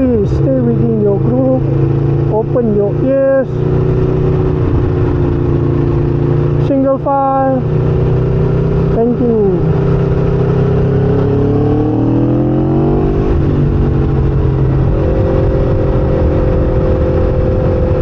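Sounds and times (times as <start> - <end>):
low wind rumble: 0.0 - 18.0
motorcycle engine revving: 0.0 - 18.0.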